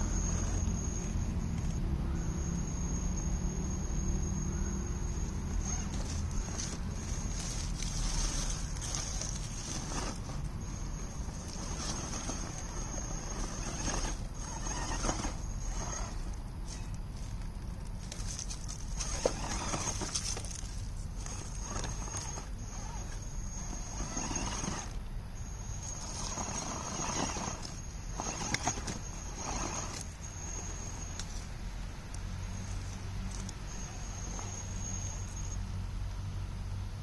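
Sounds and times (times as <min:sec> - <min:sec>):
electric drivetrain whine: 0:00.0 - 0:37.0
tyres scraping on rock: 0:05.6 - 0:31.4.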